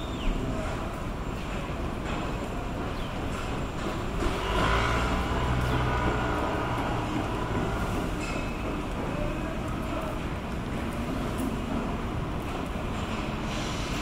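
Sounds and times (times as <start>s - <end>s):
street noise: 0.0s - 14.0s
vehicle engine rumble with whine: 4.2s - 8.2s.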